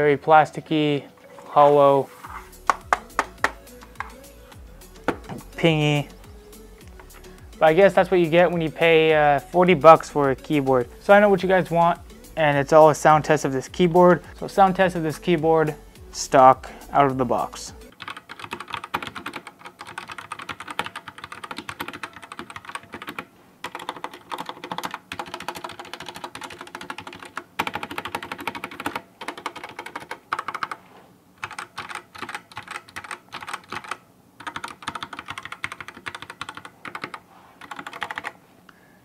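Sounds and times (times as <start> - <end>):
mechanical keyboard typing: 17.9 - 30.8, 31.4 - 38.4.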